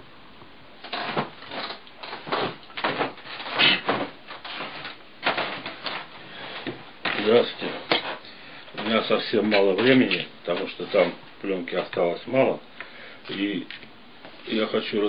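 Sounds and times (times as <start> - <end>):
rustling knocks and scrapes: 0.8 - 11.2.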